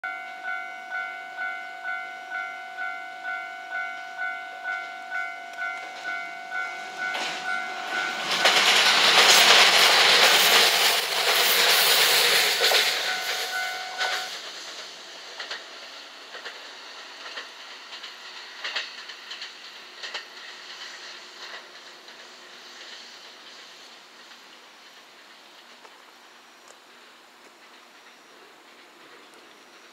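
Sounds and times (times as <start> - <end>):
level-crossing alarm dinging: 0.0 - 9.2, 12.6 - 14.4
electric train passing: 0.1 - 29.9
wheels clacking over rail joints: 4.0 - 29.9.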